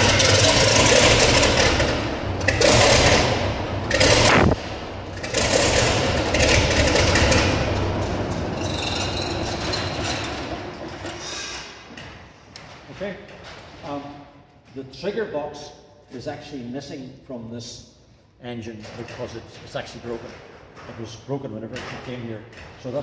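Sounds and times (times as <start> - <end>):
diesel engine running rough: 0.0 - 11.2.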